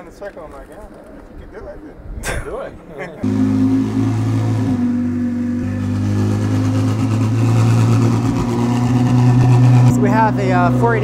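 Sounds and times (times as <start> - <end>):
race car engine at low revs: 3.2 - 11.0.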